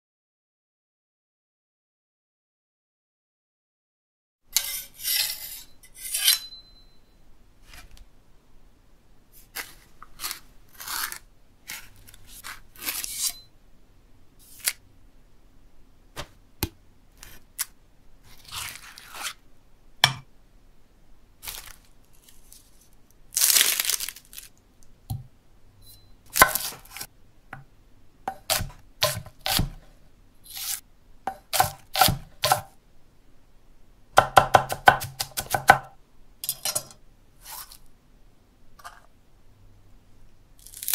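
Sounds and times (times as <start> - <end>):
knife scraping on whetstone: 4.6 - 6.6, 9.4 - 13.5, 18.3 - 19.4, 30.5 - 32.7, 37.4 - 37.8
spoon scraping stone mortar: 4.6 - 6.6, 9.4 - 13.5, 18.3 - 19.4, 28.3 - 29.8, 30.5 - 32.7, 36.4 - 37.9, 38.8 - 39.1.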